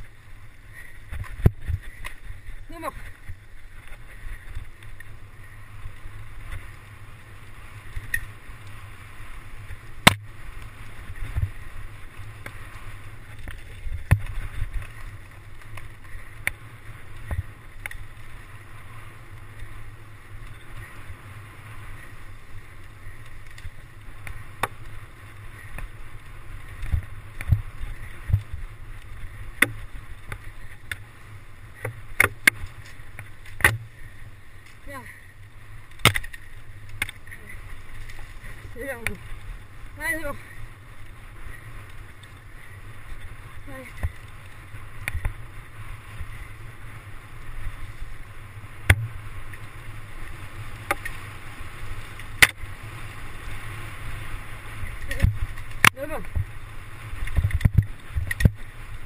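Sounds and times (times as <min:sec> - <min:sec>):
bike tyres rumbling on dirt: 0:00.0 - 0:59.0
bike knocks and rattles: 0:13.3 - 0:16.6, 0:31.8 - 0:34.0, 0:57.3 - 0:58.6.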